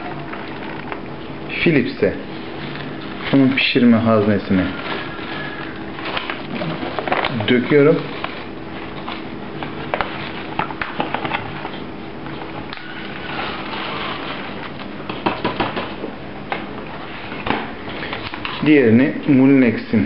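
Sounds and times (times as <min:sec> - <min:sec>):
paper bag rustling and crinkling: 0:02.2 - 0:15.0.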